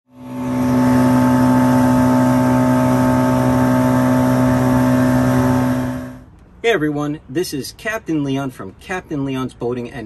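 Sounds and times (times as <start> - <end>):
boat engine drone: 0.1 - 6.2
water rushing: 0.2 - 6.2.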